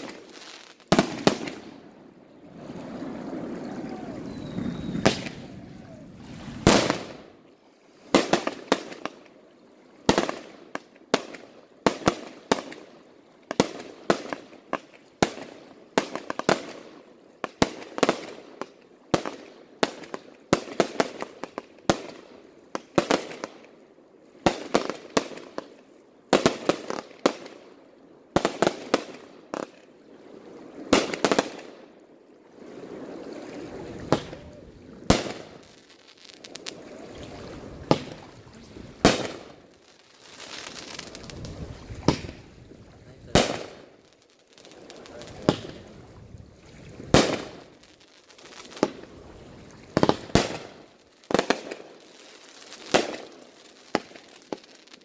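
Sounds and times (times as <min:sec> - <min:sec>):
firework bangs and crackles: 0:00.0 - 0:01.8, 0:02.6 - 0:07.3, 0:08.1 - 0:09.2, 0:13.5 - 0:23.6, 0:26.3 - 0:27.6, 0:28.3 - 0:29.8, 0:30.8 - 0:31.8, 0:32.8 - 0:46.0, 0:47.0 - 0:55.0.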